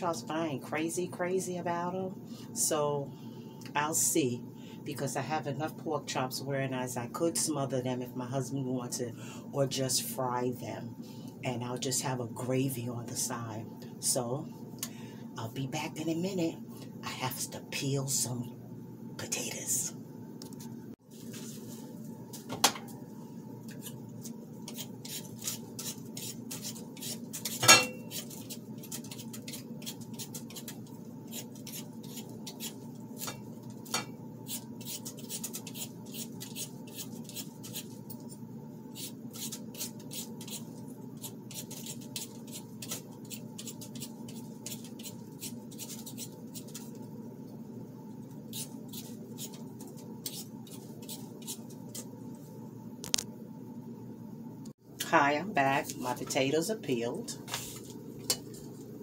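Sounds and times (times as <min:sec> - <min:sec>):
potatoes being peeled: 0:24.6 - 0:33.4, 0:34.5 - 0:38.0, 0:39.0 - 0:47.0.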